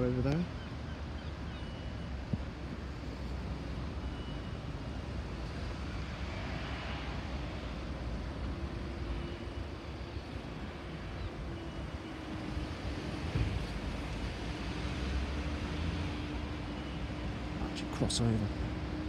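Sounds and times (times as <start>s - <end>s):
outdoor background rumble: 0.0s - 19.0s.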